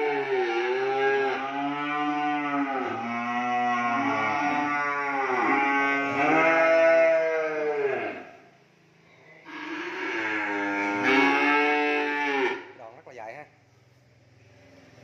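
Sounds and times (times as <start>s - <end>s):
young cattle mooing: 0.0s - 8.4s, 9.5s - 12.7s.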